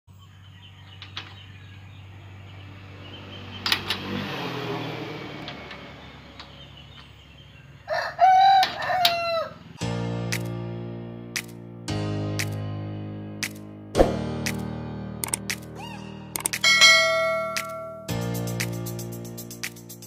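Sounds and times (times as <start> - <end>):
rooster crowing: 7.8 - 9.7
music: 9.8 - 20.0.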